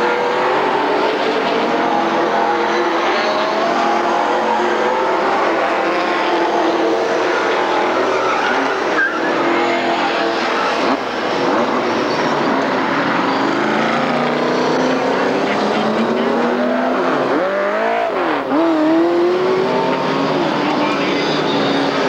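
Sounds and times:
stock car engines running hard: 0:00.0 - 0:22.0
tires skidding: 0:00.0 - 0:22.0
high squeal: 0:06.4 - 0:10.8.

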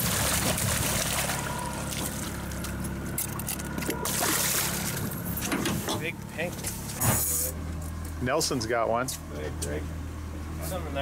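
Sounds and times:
fish splashing at surface: 0:00.0 - 0:02.4, 0:04.0 - 0:05.0
boat engine hum: 0:00.0 - 0:11.0.

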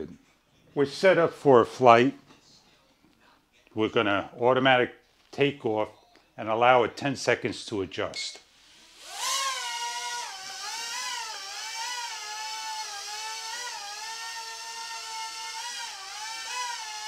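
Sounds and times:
toy helicopter rotors whining: 0:08.7 - 0:17.0.

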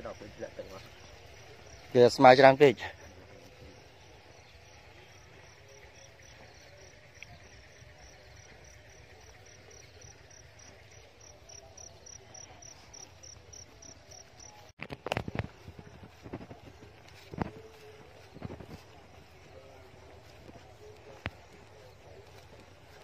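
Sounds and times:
cricket chirping: 0:00.0 - 0:14.7.

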